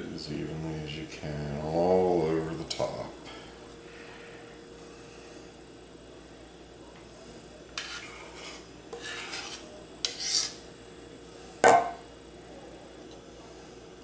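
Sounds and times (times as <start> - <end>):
palette knife scraping icing: 7.8 - 10.6.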